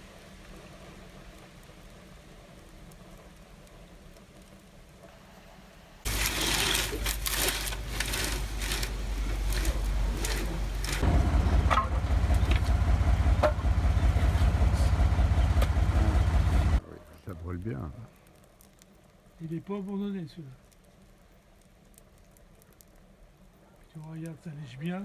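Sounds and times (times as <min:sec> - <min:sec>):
wood fire crackling: 0:00.0 - 0:25.0
heavy low rumble: 0:06.1 - 0:18.1.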